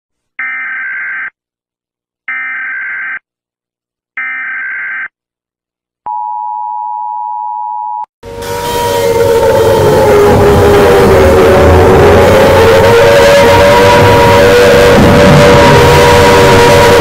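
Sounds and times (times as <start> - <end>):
electronic alarm beeps: 0.4 - 1.3, 2.3 - 3.2, 4.2 - 5.1
low steady alarm tone: 6.1 - 17.0.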